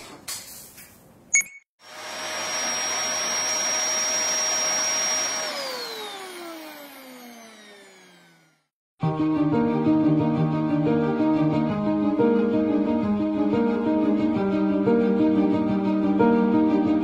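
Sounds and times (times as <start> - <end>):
vacuum cleaner motor whining: 1.8 - 8.7.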